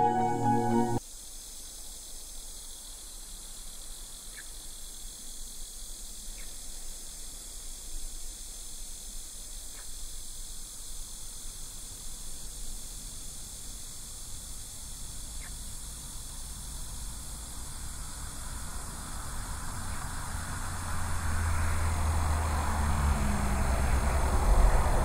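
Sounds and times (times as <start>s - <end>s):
high-pitched hiss: 0.0s - 21.7s
vehicle approaching rumble: 18.0s - 25.0s.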